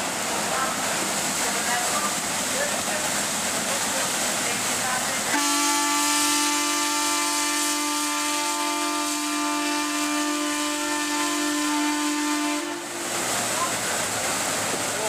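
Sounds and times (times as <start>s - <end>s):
hiss of escaping steam: 0.0s - 15.0s
steam whistle blast: 5.3s - 13.0s.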